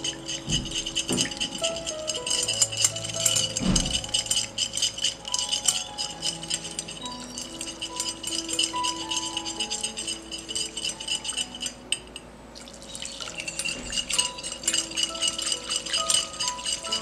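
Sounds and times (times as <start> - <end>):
whisk clicking against glass bowl: 0.0 - 12.2, 13.0 - 17.0.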